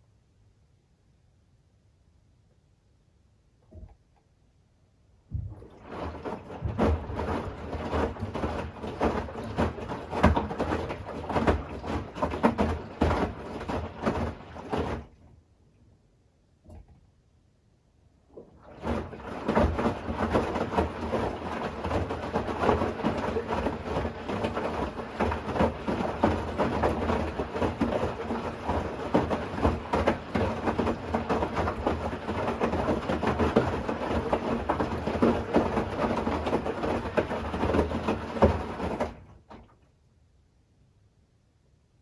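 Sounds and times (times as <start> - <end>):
washing machine drum churning: 5.2 - 15.4, 18.3 - 39.7.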